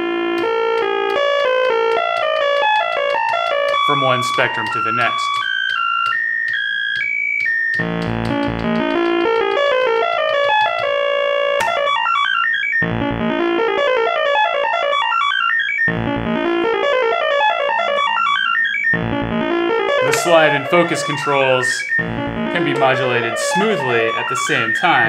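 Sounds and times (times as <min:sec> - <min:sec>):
low pulse: 0:07.8 - 0:09.1, 0:12.8 - 0:13.6, 0:15.9 - 0:25.0
bright electronic tone stepping: 0:15.0 - 0:25.0.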